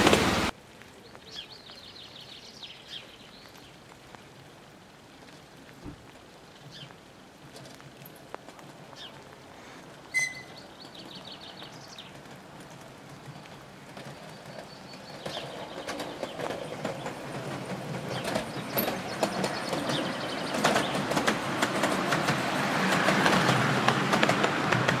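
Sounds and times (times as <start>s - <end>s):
train wheels clicking on track: 10.1s - 25.0s.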